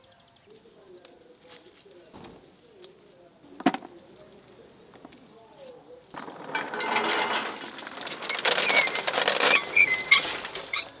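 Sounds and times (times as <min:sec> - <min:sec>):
coffee cherries rattling: 0:06.2 - 0:11.0
hand-cranked machine turning: 0:06.2 - 0:11.0
short squeaks: 0:06.2 - 0:11.0.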